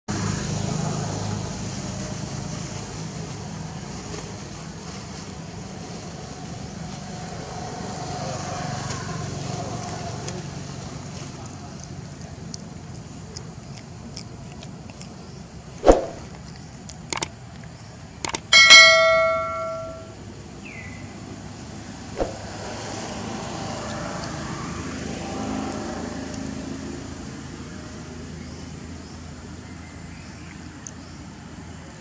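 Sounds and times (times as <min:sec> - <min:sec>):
quick double clicks: 0:17.1 - 0:17.3, 0:18.2 - 0:18.7
bright bell ding: 0:18.3 - 0:20.2
thump: 0:22.2 - 0:22.5.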